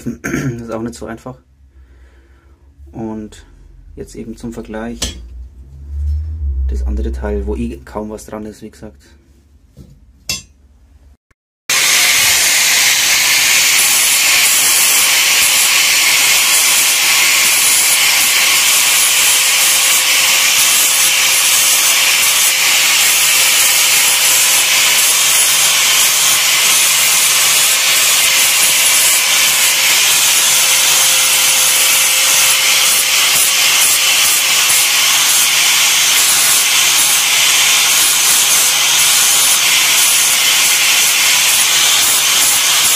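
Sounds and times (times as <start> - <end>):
angle grinder grinding steel: 11.7 - 42.9.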